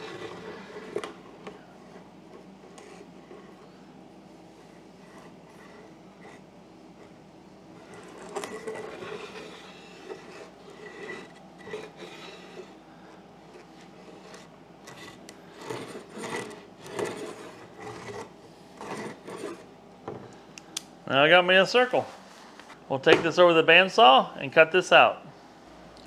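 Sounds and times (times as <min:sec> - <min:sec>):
wood scraping on plywood: 0:00.0 - 0:03.7, 0:07.8 - 0:19.7.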